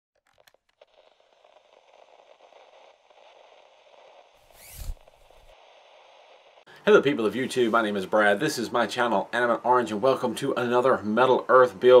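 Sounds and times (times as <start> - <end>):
faint crackling static: 0.2 - 12.0
sweeping whoosh: 4.4 - 6.6.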